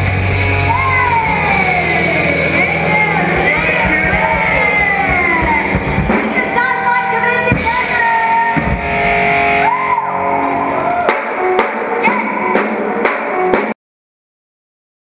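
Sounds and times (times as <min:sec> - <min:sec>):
live band playing: 0:00.0 - 0:13.8
woman singing: 0:00.7 - 0:08.6.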